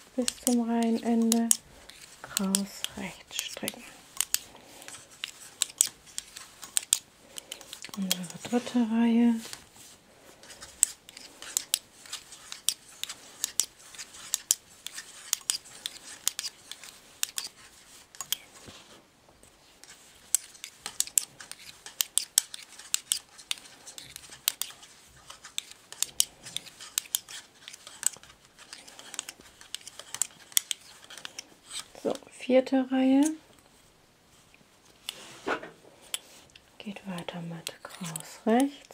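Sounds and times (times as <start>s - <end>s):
knitting needles clicking: 0.1s - 9.6s, 10.4s - 17.5s, 18.1s - 18.4s, 19.8s - 32.1s, 36.1s - 38.9s.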